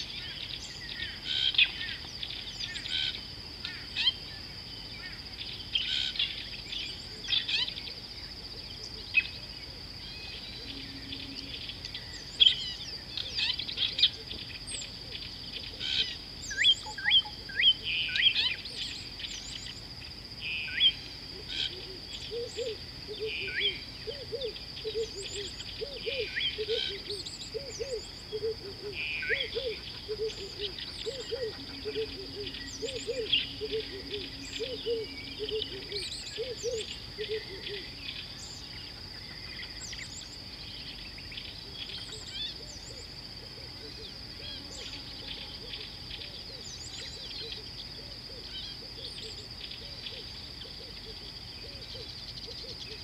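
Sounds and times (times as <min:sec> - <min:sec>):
birds chirping and whistling: 0:16.0 - 0:19.8, 0:22.1 - 0:38.6
repeated low bird call: 0:20.4 - 0:53.0.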